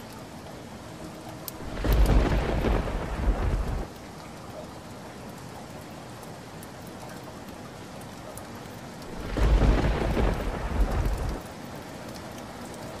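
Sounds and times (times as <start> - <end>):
steady rain: 0.0 - 13.0
thunder rumbling: 1.6 - 3.9, 9.1 - 11.4.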